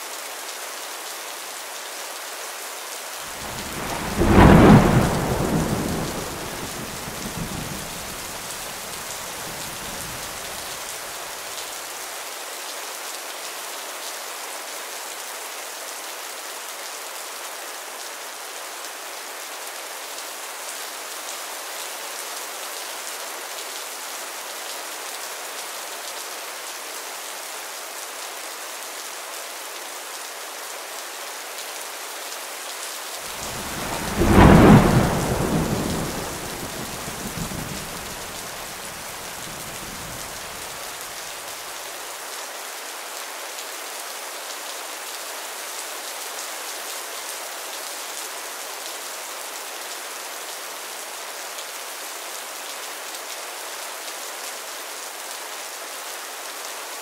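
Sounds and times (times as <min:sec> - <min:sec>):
steady rain falling: 0:00.0 - 0:57.0
thunderclap rumbling: 0:03.4 - 0:08.7, 0:33.3 - 0:40.7.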